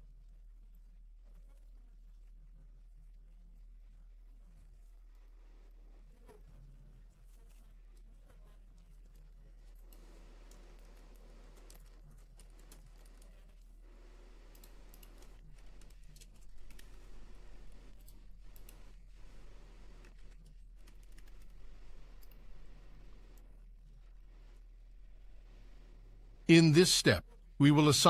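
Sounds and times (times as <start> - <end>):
steady low hum: 13.5 - 28.0
keyboard typing: 14.5 - 23.4.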